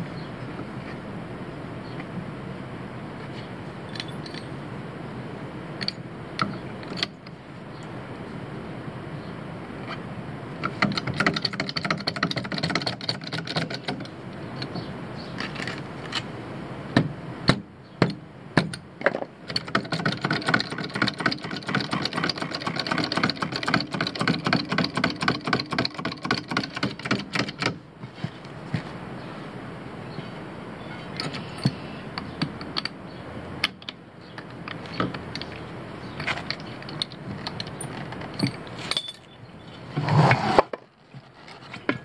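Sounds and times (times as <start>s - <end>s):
jack pumping metallic clicking: 19.5s - 27.8s, 33.6s - 39.3s.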